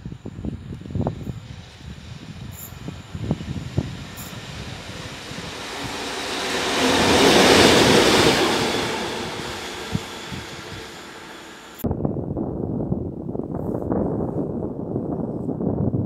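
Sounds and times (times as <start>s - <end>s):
locomotive passing by: 0.4s - 11.8s
wheel noise: 0.7s - 11.8s.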